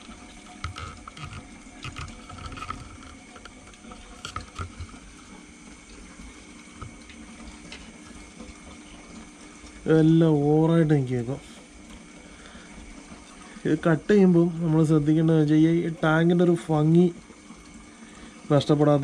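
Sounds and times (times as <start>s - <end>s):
small splashes and clicks: 0.0s - 9.9s
aquarium water trickling: 0.0s - 19.0s.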